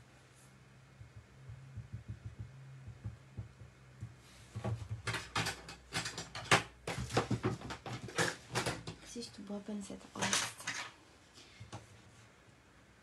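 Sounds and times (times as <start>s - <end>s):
low steady hum: 0.0s - 7.4s
paper rustling and tool knocks: 4.0s - 9.0s.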